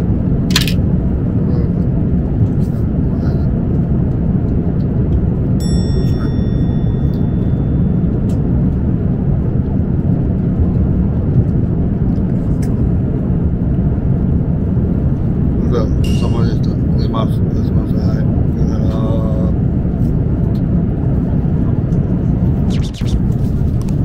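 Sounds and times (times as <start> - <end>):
airliner cabin rumble: 0.0 - 24.0
brief high tone: 5.6 - 8.1, 16.0 - 16.9.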